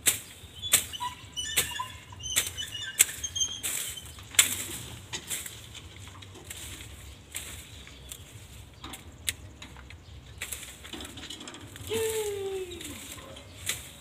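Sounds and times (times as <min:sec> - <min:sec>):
high bird chirps: 0:00.5 - 0:04.2.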